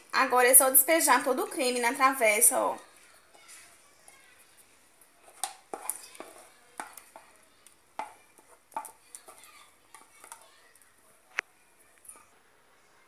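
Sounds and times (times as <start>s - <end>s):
spatula scraping glass bowl: 5.2s - 7.4s.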